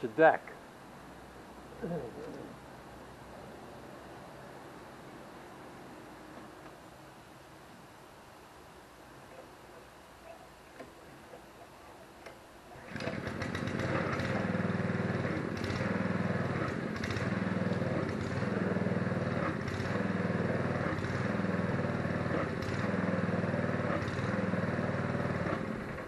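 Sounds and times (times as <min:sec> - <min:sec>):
small gasoline engine running: 0:12.8 - 0:26.0.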